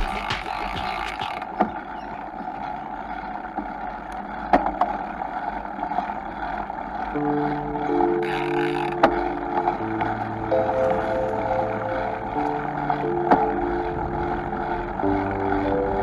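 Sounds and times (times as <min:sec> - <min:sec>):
tyre rolling on concrete: 0:00.0 - 0:01.4
sharp knocks: 0:00.0 - 0:01.8
steady tones: 0:00.0 - 0:16.0.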